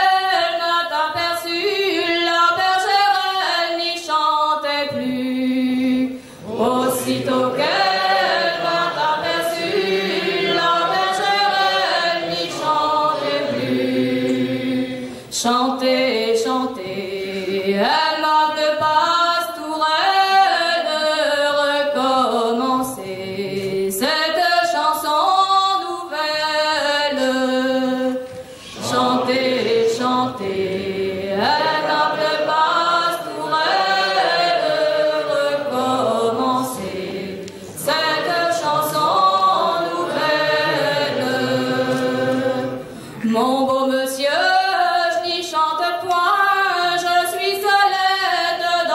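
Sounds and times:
many voices singing back: 0:06.4 - 0:18.5, 0:28.6 - 0:43.0.

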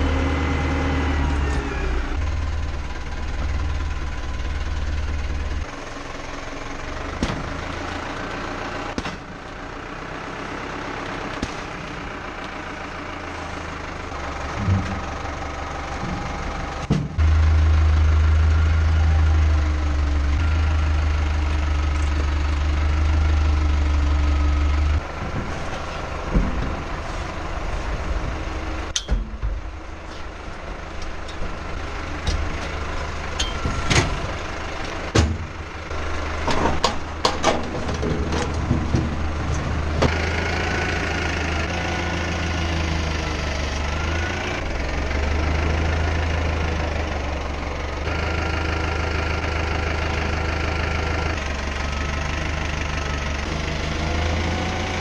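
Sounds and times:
tractor diesel engine idling: 0:00.0 - 0:55.0
metal clanks and knocks: 0:14.4 - 0:15.3, 0:25.1 - 0:27.3, 0:28.9 - 0:30.3, 0:31.0 - 0:35.6, 0:36.4 - 0:40.2.

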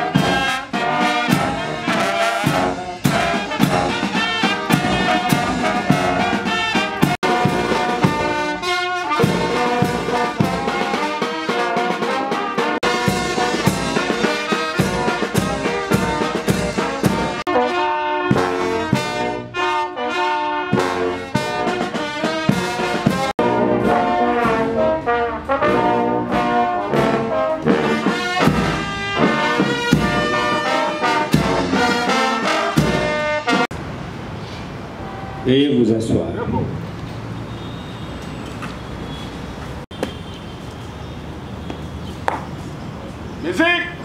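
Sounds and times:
military brass band playing: 0:00.0 - 0:33.7.

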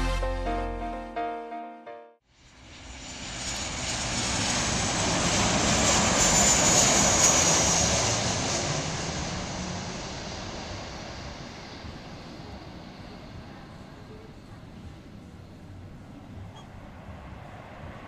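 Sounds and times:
jet engines rushing: 0:02.4 - 0:18.0
faint high whine: 0:09.7 - 0:18.0.

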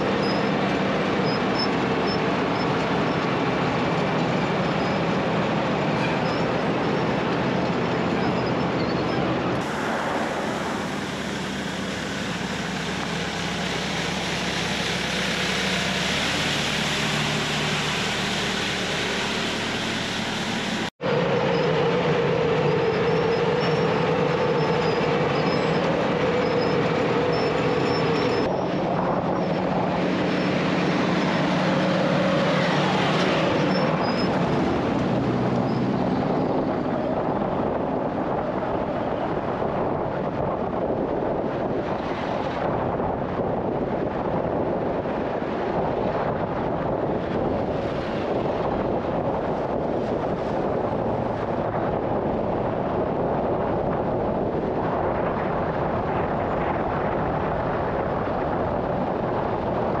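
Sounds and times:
diesel engine running: 0:00.0 - 1:00.0
dump truck engines: 0:00.0 - 1:00.0
milling machine grinding pavement: 0:09.5 - 0:20.9.

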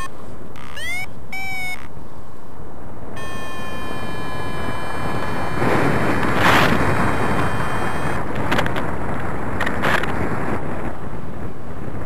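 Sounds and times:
steady high tone: 0:00.0 - 0:01.9, 0:03.2 - 0:08.3
wind rushing over microphone: 0:00.0 - 0:12.0.

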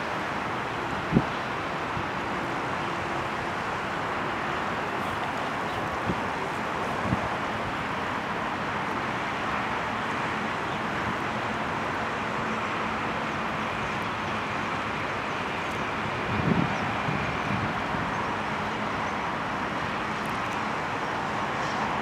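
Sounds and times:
distant road traffic: 0:00.0 - 0:22.0.

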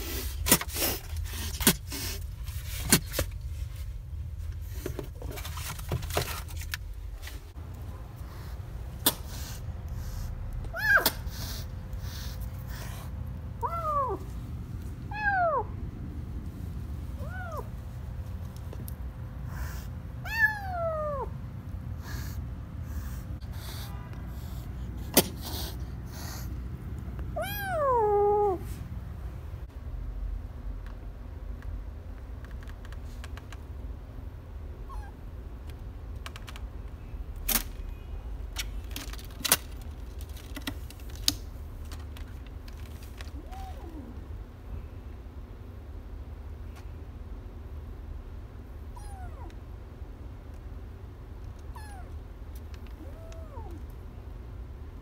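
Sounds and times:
kittens moving in cardboard box: 0:00.0 - 0:07.6, 0:38.6 - 0:44.2
steady low hum: 0:00.0 - 0:37.4
kitten meowing: 0:10.7 - 0:11.2, 0:13.6 - 0:14.3, 0:15.1 - 0:15.7, 0:17.2 - 0:17.7, 0:19.5 - 0:21.3, 0:27.4 - 0:28.6, 0:49.0 - 0:49.5, 0:51.7 - 0:52.2
sharp clicks and crackles: 0:35.6 - 0:37.8, 0:38.5 - 0:43.4.

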